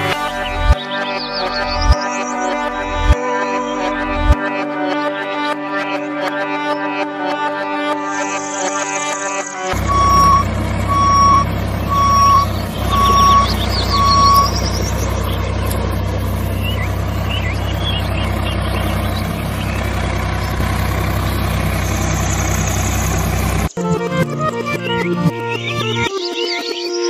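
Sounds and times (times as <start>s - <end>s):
diesel engine droning: 0.0s - 2.0s, 9.7s - 23.8s
reversing alarm beeps: 9.7s - 16.0s.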